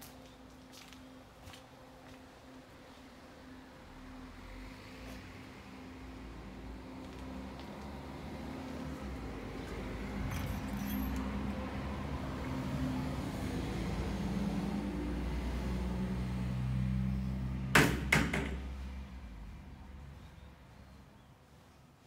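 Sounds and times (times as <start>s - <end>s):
vehicle engine drone: 0.0s - 21.6s
sharp knocks: 17.7s - 18.7s.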